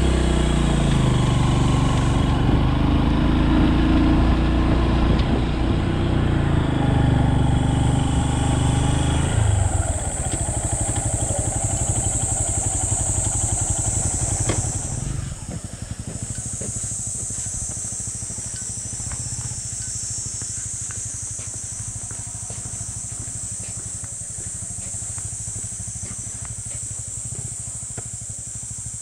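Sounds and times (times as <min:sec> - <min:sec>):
motorcycle engine idling: 0:00.0 - 0:29.0
constant high hiss: 0:09.6 - 0:29.0.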